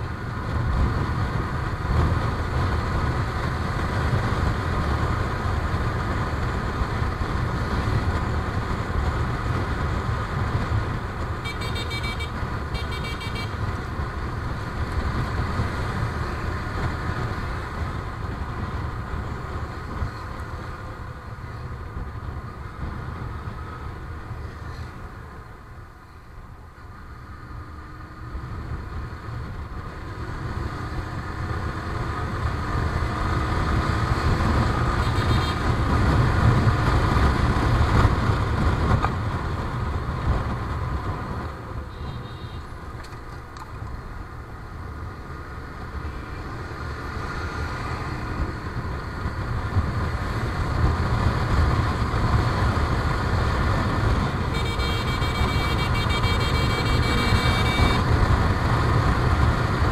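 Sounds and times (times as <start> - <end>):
horn toots: 11.4 - 13.6, 35.0 - 35.6, 54.4 - 58.1
motorcycle engine: 51.8 - 59.6.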